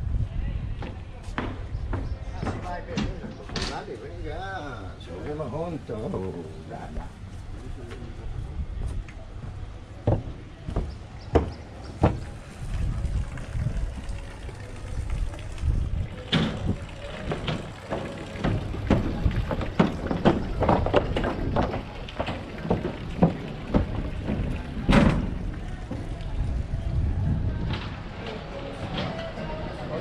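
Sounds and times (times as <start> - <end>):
footsteps walking: 6.9 - 14.3, 16.2 - 26.3.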